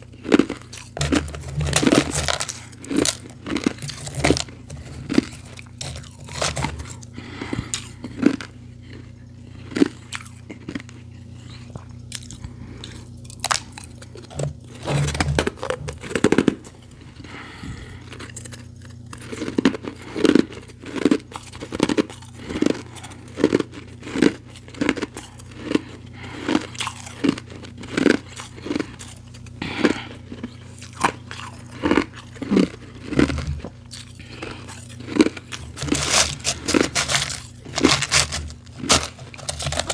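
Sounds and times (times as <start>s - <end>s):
chewing ice crunches: 0.0s - 39.9s.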